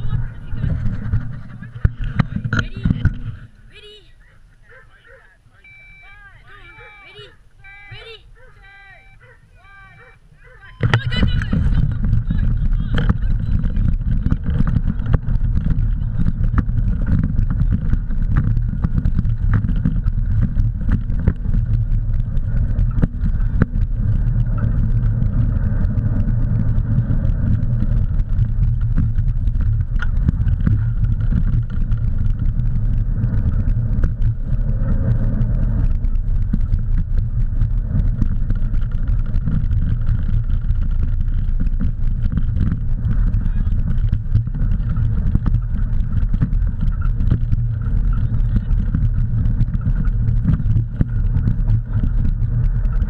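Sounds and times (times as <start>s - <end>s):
bike rolling on dirt trail: 0.0s - 5.2s, 6.4s - 53.0s
wind buffeting microphone: 0.0s - 53.0s
bike frame clicks and rattles: 11.0s - 53.0s.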